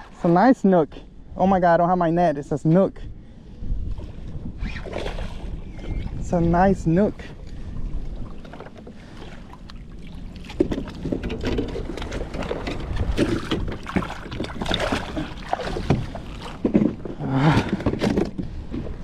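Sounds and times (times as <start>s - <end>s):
low wind noise: 0.0s - 19.0s
water splashing: 8.2s - 18.1s.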